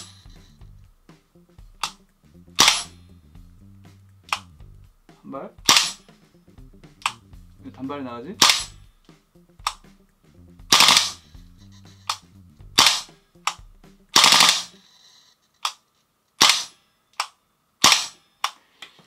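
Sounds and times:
airsoft rifle shots: 2.6s - 3.0s, 5.6s - 6.0s, 8.4s - 8.7s, 10.7s - 11.2s, 12.8s - 14.8s, 16.4s - 16.8s, 17.8s - 18.2s.

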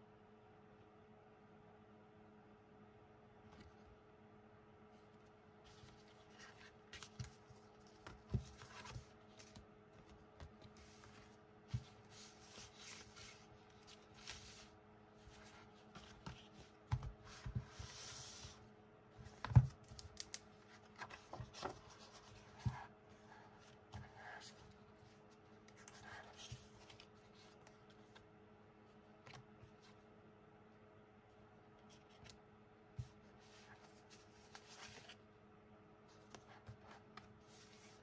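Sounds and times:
paper and cardboard handling: 5.0s - 18.6s, 19.2s - 28.3s.

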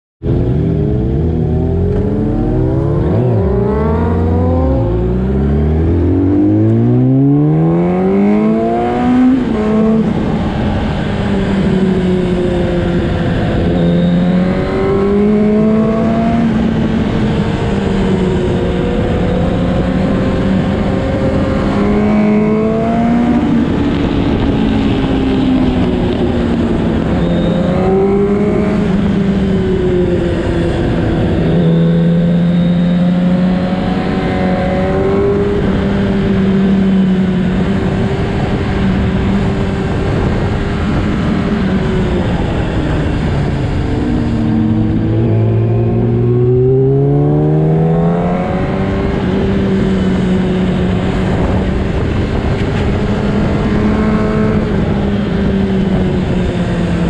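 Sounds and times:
wind rush: 0.2s - 32.1s, 33.4s - 57.0s
motorcycle engine accelerating: 0.2s - 57.0s.

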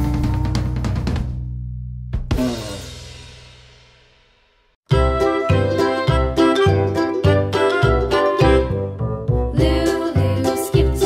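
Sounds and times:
drum and cymbal hit ringing: 0.0s - 1.4s, 2.2s - 5.3s
music with drum kit: 0.0s - 11.0s.

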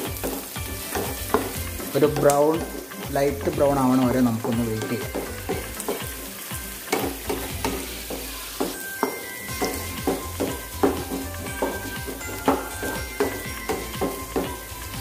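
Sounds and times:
onions sizzling in hot oil: 0.0s - 15.0s
spatula stirring in a pan: 0.0s - 15.0s.

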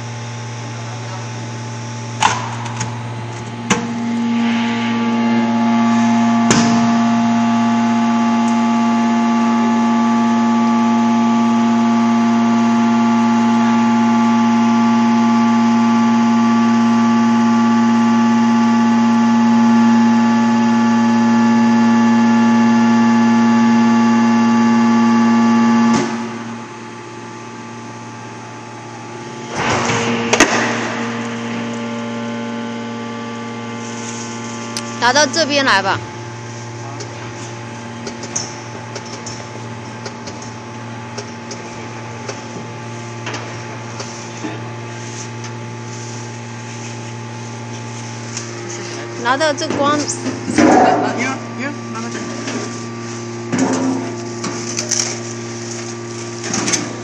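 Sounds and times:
hydraulic unit hum: 0.0s - 57.0s
loud steady hydraulic whine: 0.0s - 57.0s.

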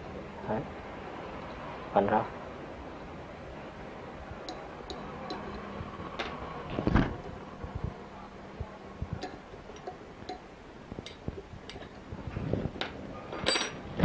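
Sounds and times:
metallic tool clicks and clinks: 13.5s - 13.8s.

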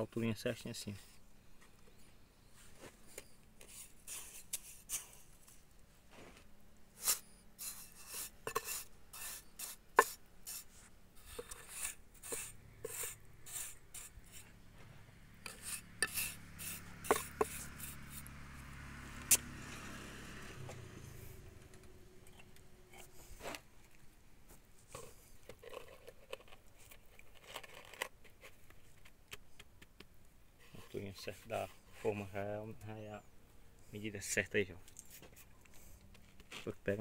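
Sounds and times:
low steady hum: 0.0s - 34.0s
trowel scraping and tapping concrete: 7.1s - 10.6s, 11.2s - 14.4s, 15.4s - 18.3s.

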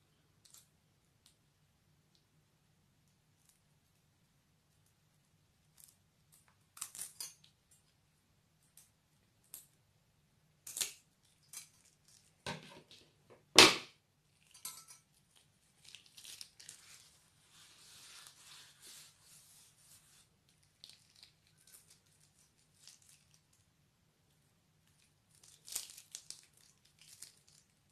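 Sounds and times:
plastic bag crinkling: 15.6s - 17.2s, 20.6s - 23.5s, 24.9s - 27.8s.

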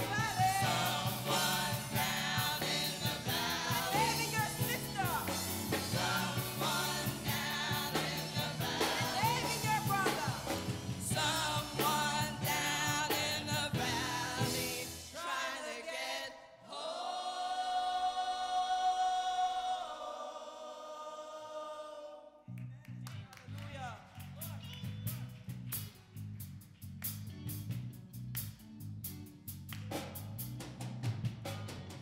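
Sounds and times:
steady beat and bass: 0.0s - 15.0s
gospel choir singing: 0.0s - 22.4s.

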